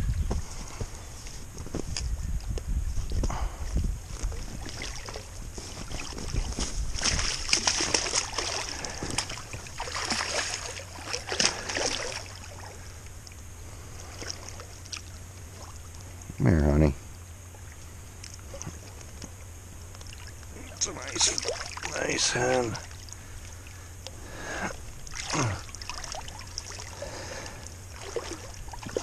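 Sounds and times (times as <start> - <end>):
wind rumbling on microphone: 0.0 - 11.0
water splashing and sloshing: 3.0 - 16.3, 17.4 - 29.0.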